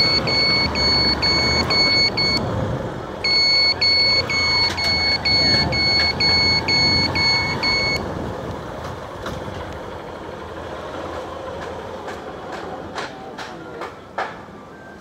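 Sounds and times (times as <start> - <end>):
electronic beeps: 0.0 - 2.4, 3.2 - 8.0.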